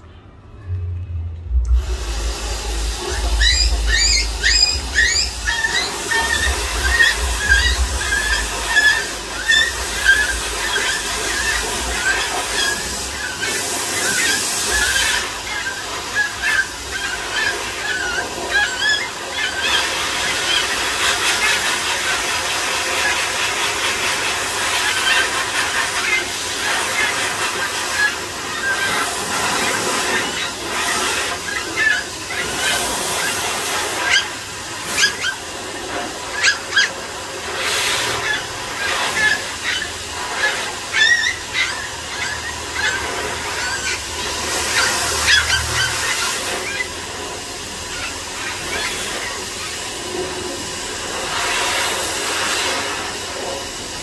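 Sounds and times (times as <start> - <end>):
puppies yipping and whining: 1.8 - 50.2.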